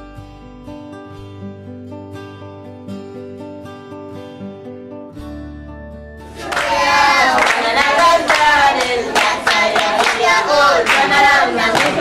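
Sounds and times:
children singing: 6.4s - 12.0s
hands clapping: 6.4s - 12.0s.

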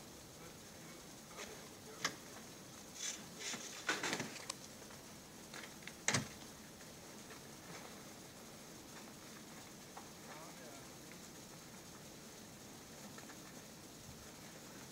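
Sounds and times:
faint steady hiss: 0.0s - 14.9s
clicks and rustles: 1.4s - 4.8s.

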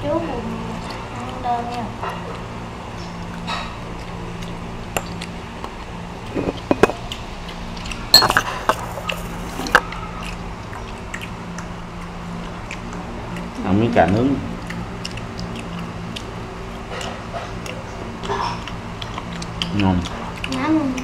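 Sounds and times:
steady low hum: 0.0s - 21.0s
spoon and dishes clinking: 5.0s - 5.2s, 6.3s - 7.0s, 8.1s - 9.9s.

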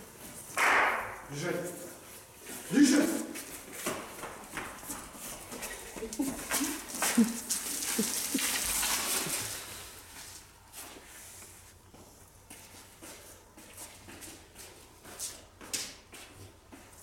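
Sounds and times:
puppy steps pattering: 0.0s - 17.0s
rustling: 1.2s - 11.8s.

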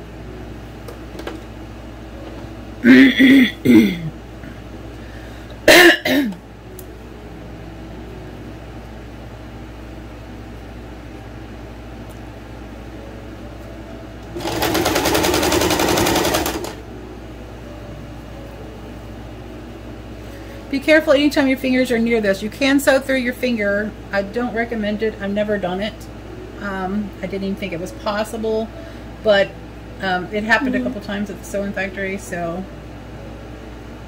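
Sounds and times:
sewing machine stitching: 14.3s - 16.8s.

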